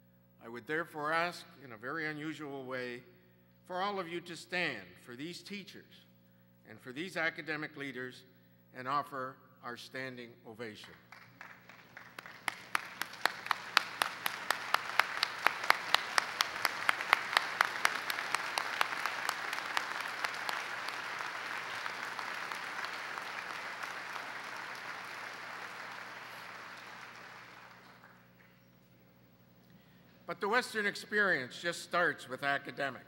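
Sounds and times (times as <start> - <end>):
sharp hand claps close by: 11.1 - 28.2
audience applauding: 11.1 - 28.3.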